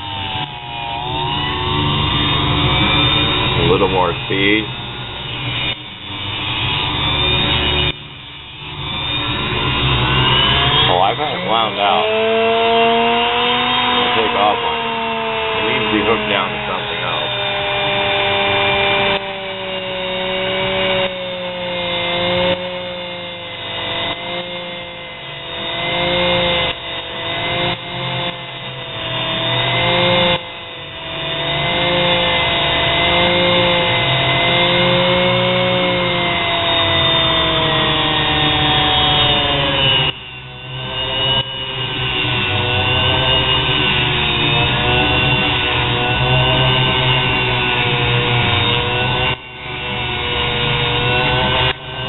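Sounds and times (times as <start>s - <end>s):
motor whining: 0.0s - 52.0s
metal rod grinding on wheel: 10.5s - 12.4s.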